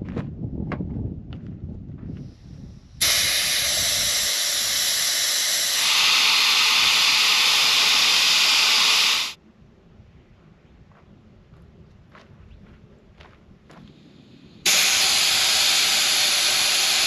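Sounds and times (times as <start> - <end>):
air hissing from tire valve: 2.2 - 9.4, 13.9 - 17.0.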